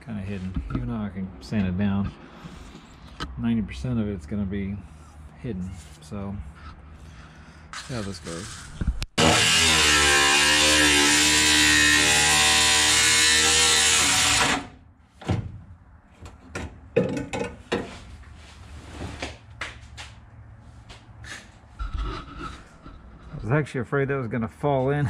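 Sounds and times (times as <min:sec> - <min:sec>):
grinder cutting sheet steel: 0:07.8 - 0:14.8.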